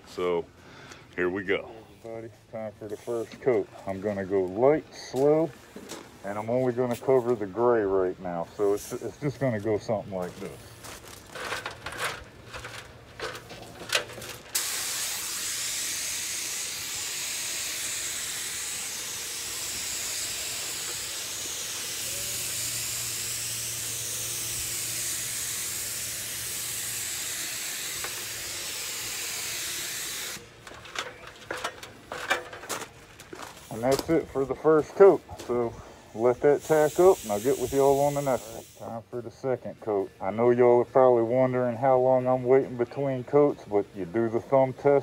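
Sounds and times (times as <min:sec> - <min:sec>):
paint spray gun hissing: 0:14.5 - 0:31.2, 0:36.5 - 0:38.9.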